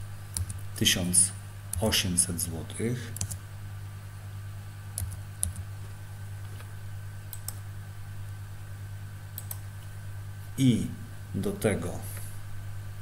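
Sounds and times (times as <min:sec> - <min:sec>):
steady low hum: 0:00.0 - 0:13.0
computer keyboard keystrokes: 0:00.3 - 0:00.6, 0:03.2 - 0:03.4, 0:05.0 - 0:05.7, 0:07.3 - 0:07.6, 0:09.4 - 0:09.6.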